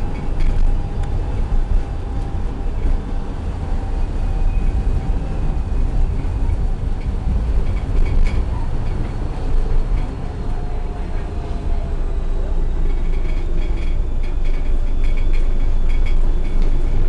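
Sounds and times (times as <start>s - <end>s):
faint whine: 0.0s - 17.0s
tram rumble: 0.0s - 17.0s.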